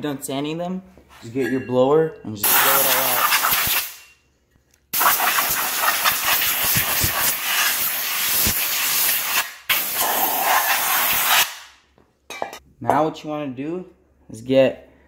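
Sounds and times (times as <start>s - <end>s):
compressed air blow gun hissing: 5.0s - 11.6s.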